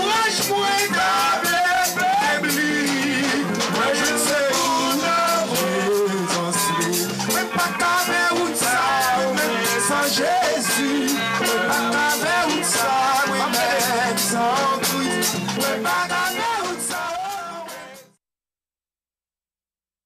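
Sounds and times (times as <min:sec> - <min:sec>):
band accompaniment: 0:00.0 - 0:18.2
man singing into microphone: 0:00.0 - 0:18.2
percussion steady beat: 0:00.0 - 0:18.2.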